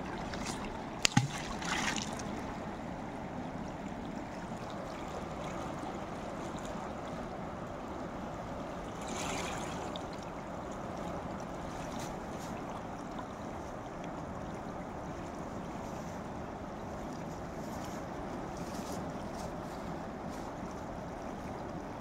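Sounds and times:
flowing stream water: 0.0s - 22.0s.

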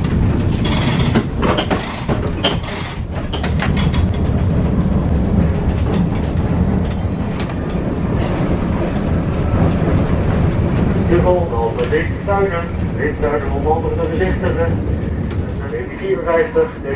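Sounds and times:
sharp clicks and knocks: 0.0s - 4.4s
tram wheels rumbling: 0.0s - 16.9s.

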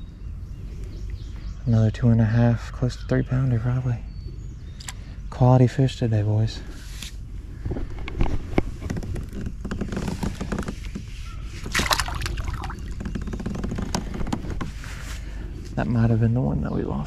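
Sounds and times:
fish splashing into water: 11.6s - 12.8s.

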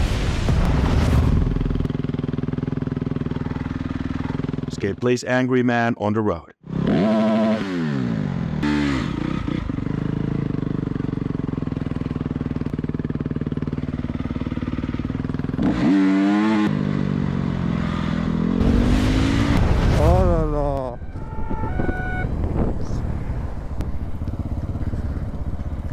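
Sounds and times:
dirt bike engine revving: 2.0s - 4.8s, 6.6s - 23.0s.

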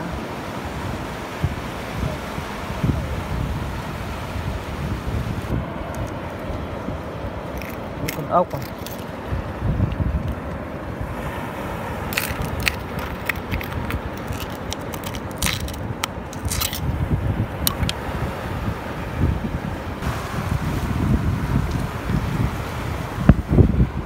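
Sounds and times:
wind on microphone: 0.0s - 24.0s
shells and stones clicking: 7.6s - 9.1s, 12.1s - 16.9s, 17.7s - 18.0s.

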